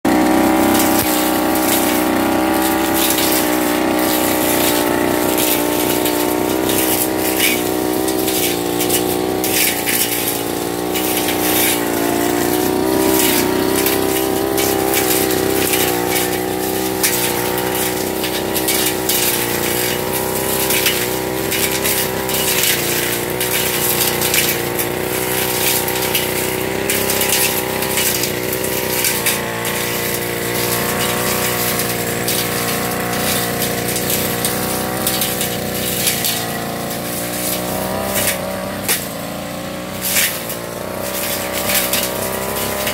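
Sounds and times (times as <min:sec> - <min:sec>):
brush cutter engine under load: 0:00.0 - 0:42.9.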